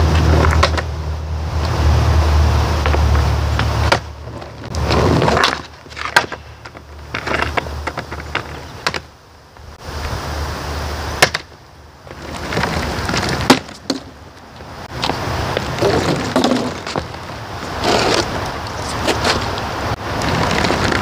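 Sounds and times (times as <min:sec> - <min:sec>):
skateboard wheels rumbling on asphalt: 0:00.0 - 0:21.0
skateboard sharp clacks: 0:00.1 - 0:00.9.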